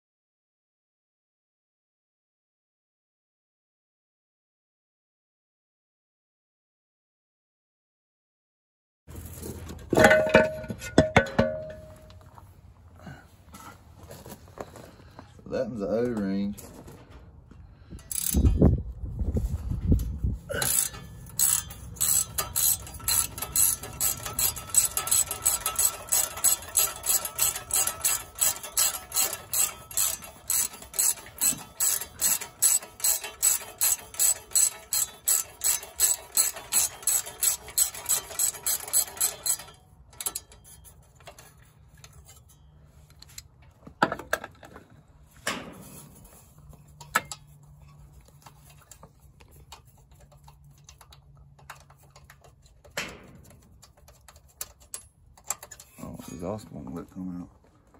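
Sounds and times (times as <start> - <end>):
ratchet wrench clicking: 18.0 - 18.6, 20.6 - 40.9, 53.8 - 56.0.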